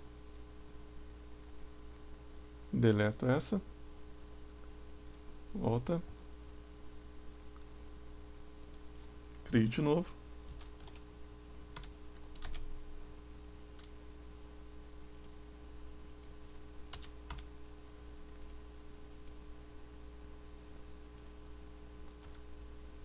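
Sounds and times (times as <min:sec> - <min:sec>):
keyboard typing: 0:10.5 - 0:11.1, 0:11.8 - 0:12.7, 0:16.1 - 0:17.5.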